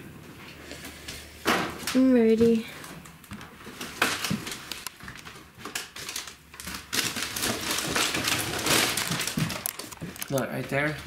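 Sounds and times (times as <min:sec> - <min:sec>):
footsteps crunching on debris: 0:08.8 - 0:11.0.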